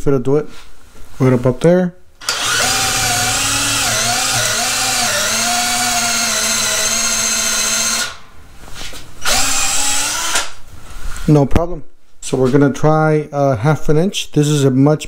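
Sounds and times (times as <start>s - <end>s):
cordless drill boring into wood: 2.2s - 8.2s, 9.2s - 10.6s.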